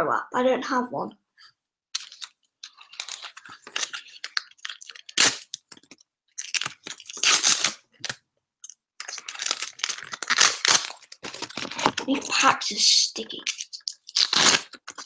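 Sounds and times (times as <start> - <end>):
foil pack crinkling: 2.0 - 8.2, 9.0 - 12.4, 13.3 - 15.0.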